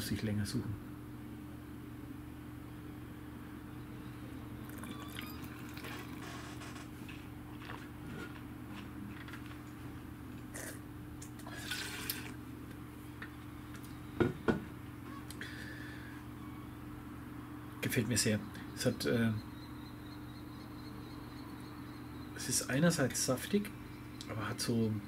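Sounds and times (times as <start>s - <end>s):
low room hum: 0.0s - 25.0s
wine slurping: 4.6s - 6.3s, 11.4s - 12.4s.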